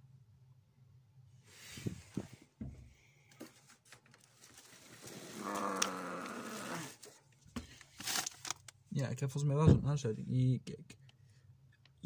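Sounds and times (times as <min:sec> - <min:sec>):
low vocal groan: 0:05.3 - 0:07.0.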